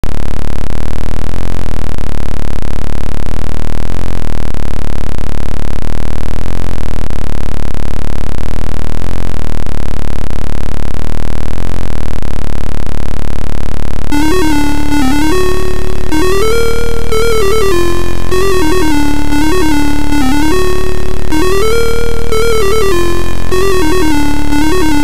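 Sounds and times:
looping synthesizer chords: 14.1 - 25.0.

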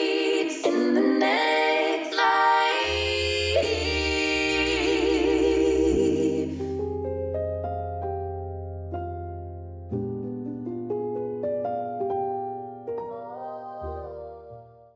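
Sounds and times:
sung vocal melody: 0.0 - 7.5, 12.9 - 14.9
deep bass: 2.9 - 11.3.

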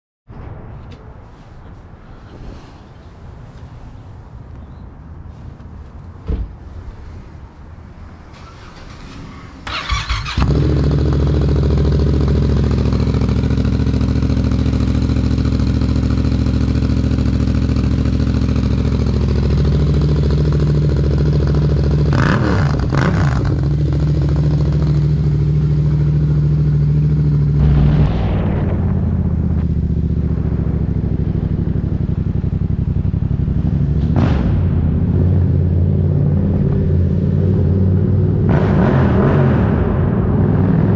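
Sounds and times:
motorcycle starter cranking: 8.3 - 10.6
motorcycle engine idling: 9.7 - 27.6, 29.8 - 34.0.

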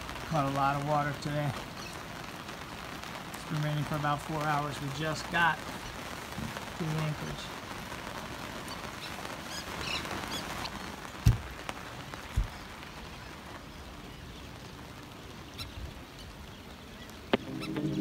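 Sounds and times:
rain hissing: 0.0 - 18.0
dull thumps: 11.2 - 11.5, 12.3 - 12.6.

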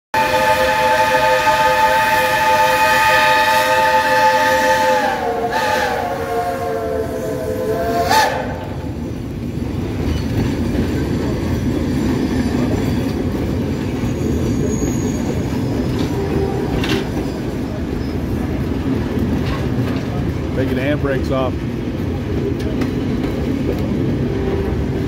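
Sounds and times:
steam whistle blowing: 0.1 - 8.8
rumble of moving train: 0.2 - 25.0.

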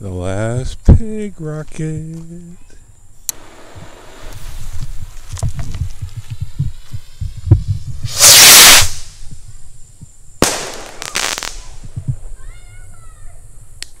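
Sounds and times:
bottle rocket launching hiss: 3.3 - 9.3, 10.4 - 11.8
rocket burst pop: 4.2 - 9.2, 10.4 - 12.1.

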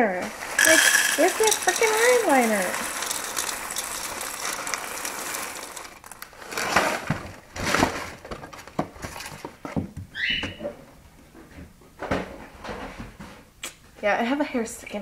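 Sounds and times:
cereal pouring into a bowl: 0.1 - 8.0
plastic bag crinkling: 0.3 - 8.3.

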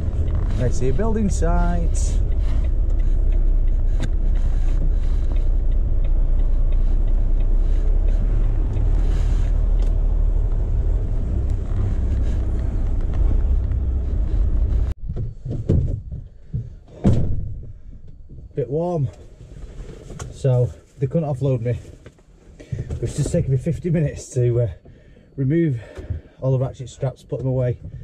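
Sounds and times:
diesel engine drone: 0.0 - 15.0
rustles and knocks: 11.4 - 18.5.

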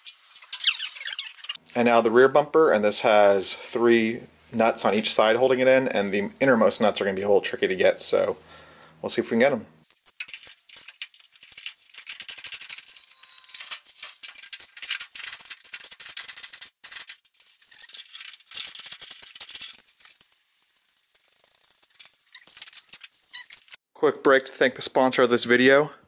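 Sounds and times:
ratchet wrench clicking: 9.9 - 23.7.

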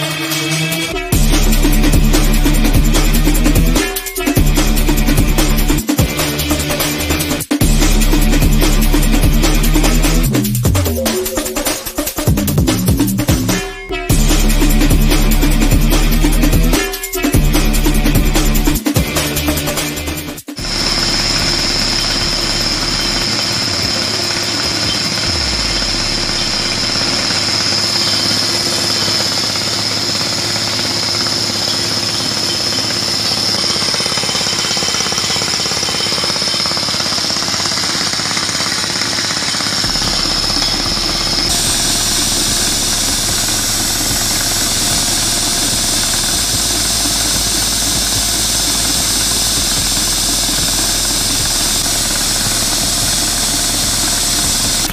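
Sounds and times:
drill rig hammering rock: 0.0 - 54.9
compressed air blast: 37.8 - 54.9.

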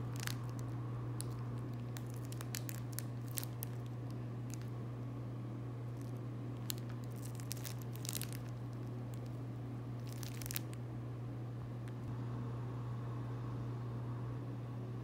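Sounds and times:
plastic wrapper crinkling and tearing: 0.0 - 4.8, 5.9 - 9.4, 10.0 - 10.8
steady low hum: 0.0 - 15.0.

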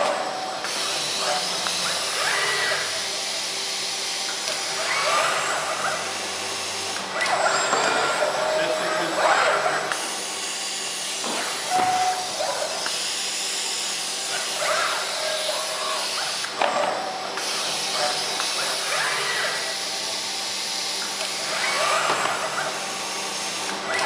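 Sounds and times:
robot arm whines and clicks: 0.0 - 24.0.

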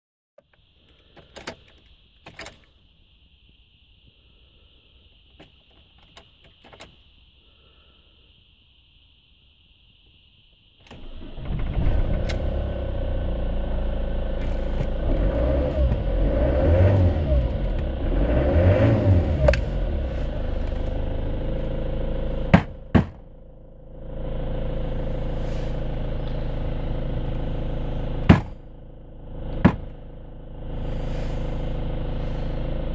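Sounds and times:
van engine starting and idling: 10.8 - 32.9.

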